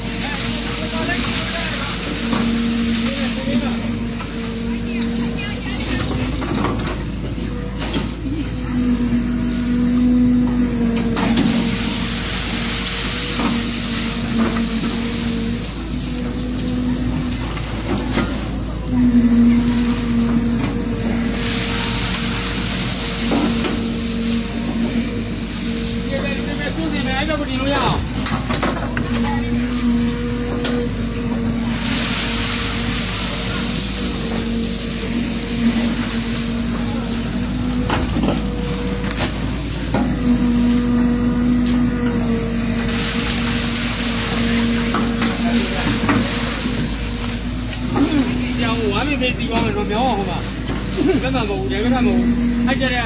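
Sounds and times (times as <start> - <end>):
engine humming: 0.0 - 53.0.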